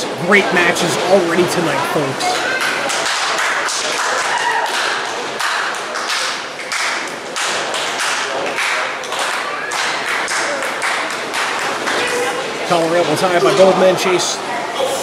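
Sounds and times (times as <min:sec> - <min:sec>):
audience clapping in rhythm: 0:02.2 - 0:12.1.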